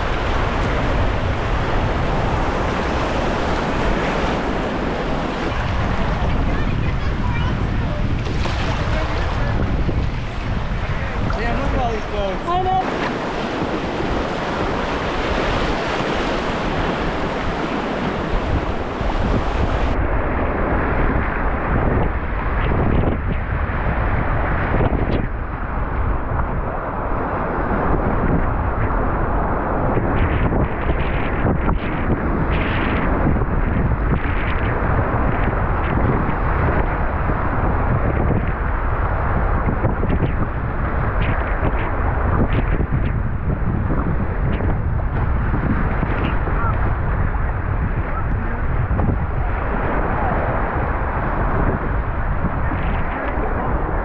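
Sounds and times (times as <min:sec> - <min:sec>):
whitewater rapid rushing: 0:00.0 - 0:20.0
wind buffeting microphone: 0:00.0 - 0:54.0
rush of whitewater rapids: 0:10.4 - 0:20.0.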